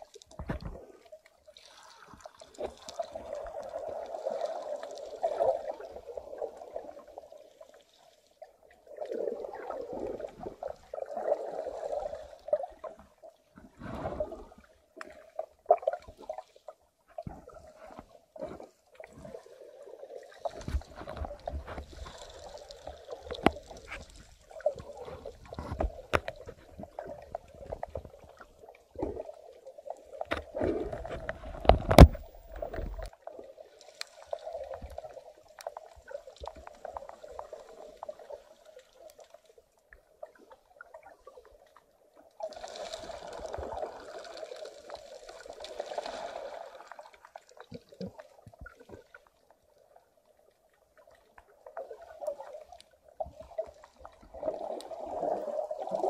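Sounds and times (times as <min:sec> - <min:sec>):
underwater sloshing and gurgling: 0:00.0 - 0:56.0
clicks and knocks: 0:31.1 - 0:33.1.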